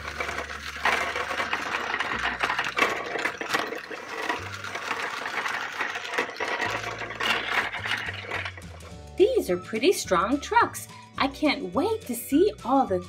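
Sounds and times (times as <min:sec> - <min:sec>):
plastic wheels clattering on track: 0:00.0 - 0:10.4
toy truck motors whirring: 0:00.0 - 0:10.8.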